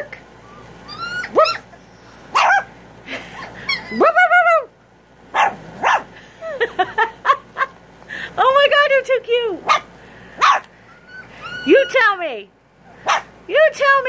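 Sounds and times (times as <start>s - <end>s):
puppy yelping: 0.4s - 2.7s, 3.4s - 4.4s, 5.3s - 6.1s, 9.6s - 12.2s, 13.0s - 13.3s
puppy barking and yipping: 0.4s - 2.8s, 3.5s - 4.2s, 5.3s - 6.1s, 9.6s - 12.1s, 13.0s - 13.3s.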